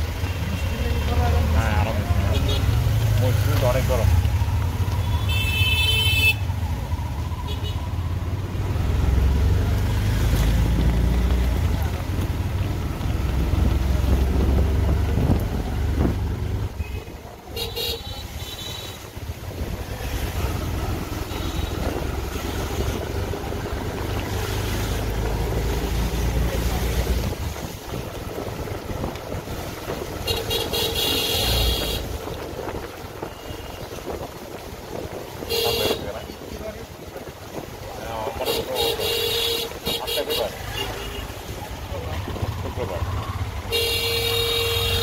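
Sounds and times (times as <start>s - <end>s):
road traffic engine rumble: 0.0s - 45.0s
vehicle horns honking: 5.0s - 6.5s, 16.8s - 19.1s, 21.2s - 22.0s, 30.2s - 32.2s, 35.4s - 36.2s, 38.4s - 41.4s, 43.6s - 45.0s
wind noise: 13.1s - 17.4s, 25.0s - 38.2s.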